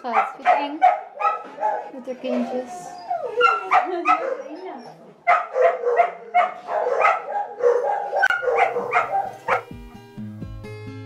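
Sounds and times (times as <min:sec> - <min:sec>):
puppies whining and yelping: 0:01.1 - 0:05.2
acoustic guitar music: 0:08.2 - 0:11.0.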